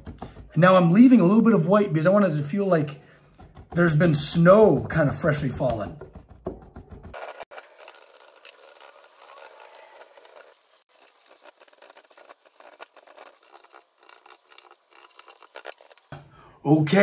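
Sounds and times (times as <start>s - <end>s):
paintbrush tapping and scratching: 3.2s - 9.4s, 11.0s - 16.2s.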